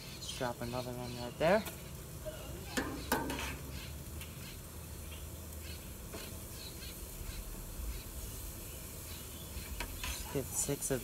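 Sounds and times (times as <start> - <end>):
faint bird calls: 0.0 - 10.7
patties sizzling on grill: 0.0 - 11.0.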